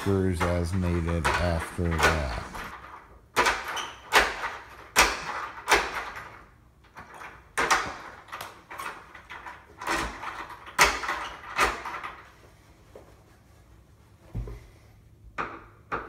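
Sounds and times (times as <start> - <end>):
deadbolt clacking: 0.4 - 6.4.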